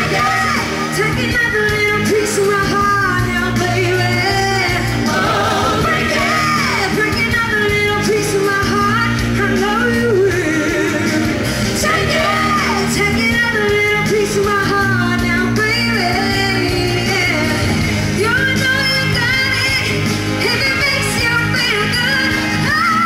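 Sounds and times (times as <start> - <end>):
amplified pop-rock music: 0.0 - 23.0
woman singing into microphone: 0.0 - 23.0.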